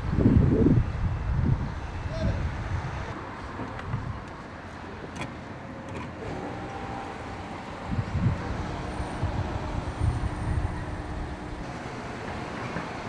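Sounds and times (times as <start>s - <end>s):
road traffic: 0.0s - 13.0s
faint steady hum: 6.5s - 12.0s
low rumbles: 6.6s - 11.8s.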